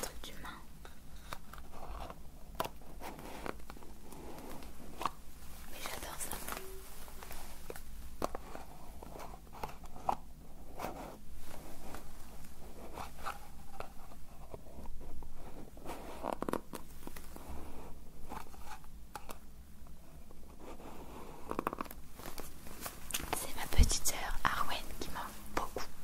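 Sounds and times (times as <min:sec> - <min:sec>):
scratching and rubbing handling: 0:00.8 - 0:19.3.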